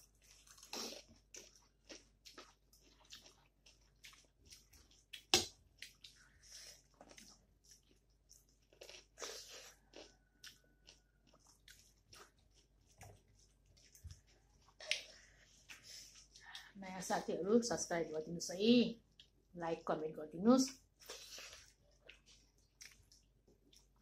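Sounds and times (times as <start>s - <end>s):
person chewing food: 0.0s - 16.8s, 19.0s - 19.5s, 20.8s - 24.0s
fingers squishing food: 20.9s - 24.0s.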